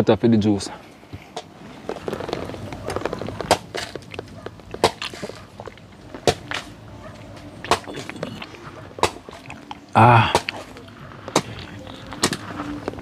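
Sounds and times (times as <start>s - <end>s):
machete striking coconut: 3.4s - 4.0s, 4.8s - 5.3s, 6.2s - 6.7s, 9.0s - 9.4s, 10.2s - 10.7s, 11.3s - 12.4s.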